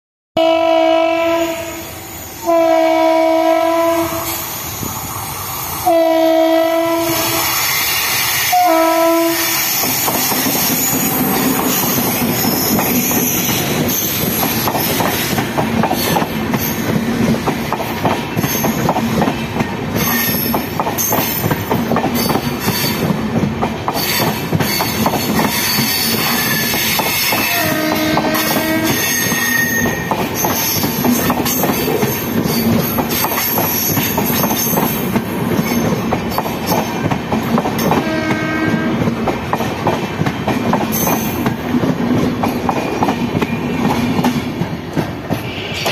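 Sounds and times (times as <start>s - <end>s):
train horn blasts: 0.4s - 4.4s, 5.8s - 7.5s, 8.5s - 9.7s, 27.3s - 30.1s, 37.9s - 39.1s
train wheels clattering over rail joints: 9.6s - 45.9s.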